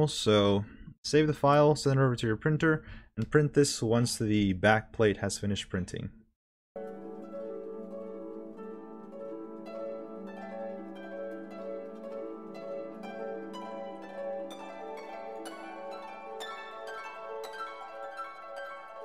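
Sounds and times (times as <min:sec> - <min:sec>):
instrumental background music: 0:06.8 - 0:19.0.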